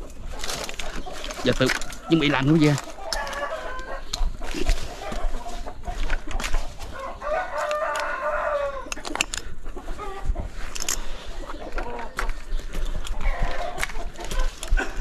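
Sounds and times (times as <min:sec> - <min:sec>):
chicken clucking: 0:00.0 - 0:15.0
footsteps through dry leaves: 0:00.2 - 0:08.7
rooster crowing: 0:01.8 - 0:04.1, 0:06.9 - 0:09.0.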